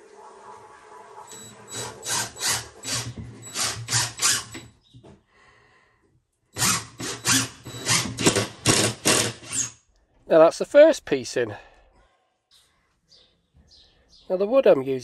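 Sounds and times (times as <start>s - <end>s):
impact driver hammering screw: 1.8s - 4.7s, 6.6s - 9.8s.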